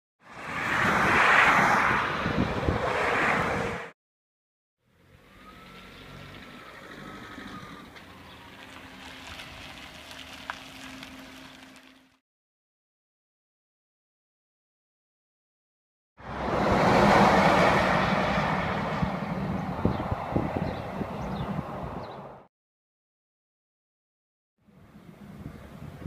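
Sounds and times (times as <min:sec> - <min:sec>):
vehicles passing on motorway: 0:00.2 - 0:04.0, 0:04.8 - 0:12.2, 0:16.2 - 0:22.5, 0:24.6 - 0:26.0.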